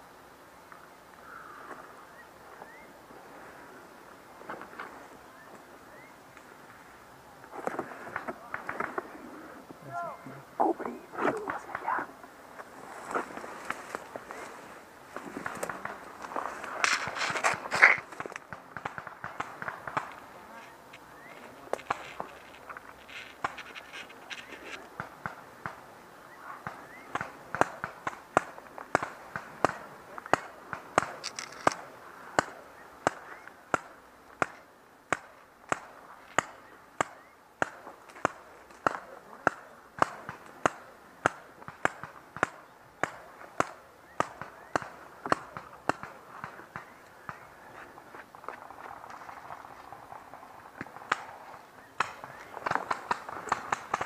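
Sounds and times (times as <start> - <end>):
footsteps walking: 19.9 - 24.8
scattered clicks: 26.6 - 31.8, 52.0 - 54.0.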